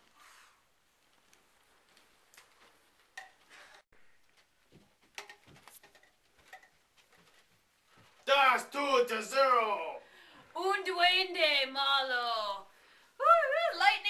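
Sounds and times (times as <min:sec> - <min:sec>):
faint light clicks and knocks: 0:01.2 - 0:08.2.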